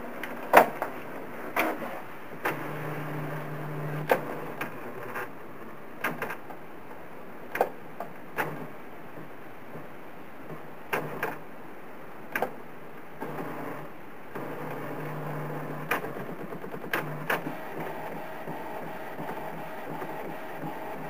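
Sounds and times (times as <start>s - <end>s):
printer feed motor hum: 1.6s - 5.3s, 13.2s - 21.0s.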